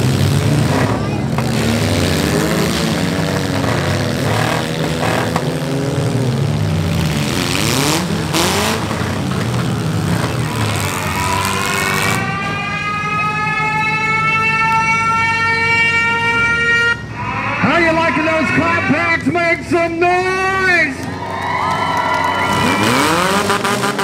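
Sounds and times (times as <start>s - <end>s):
car engines revving: 0.0s - 24.0s
siren winding up: 10.6s - 19.0s, 22.3s - 23.4s.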